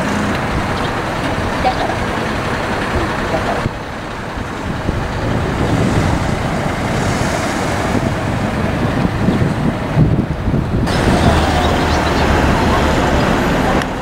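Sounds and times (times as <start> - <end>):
road traffic: 0.0 - 14.0
wind buffeting microphone: 0.0 - 14.0.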